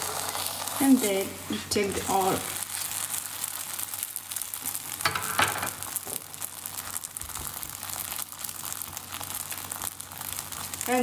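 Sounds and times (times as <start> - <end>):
dough sizzling on a griddle: 0.0 - 11.0.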